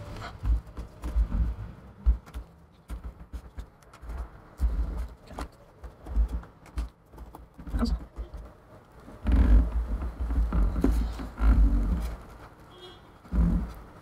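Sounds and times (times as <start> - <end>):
heavier bumps: 0.0 - 6.8.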